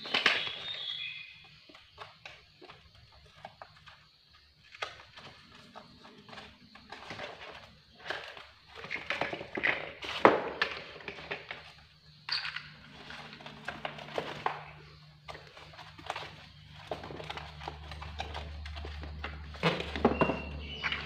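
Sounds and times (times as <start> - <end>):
knocking against plastic blocks: 6.9 - 21.0.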